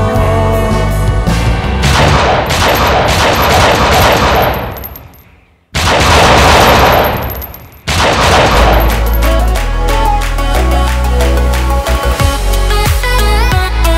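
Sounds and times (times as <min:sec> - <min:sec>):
gunfire bursts: 0:01.9 - 0:05.1, 0:05.7 - 0:09.2.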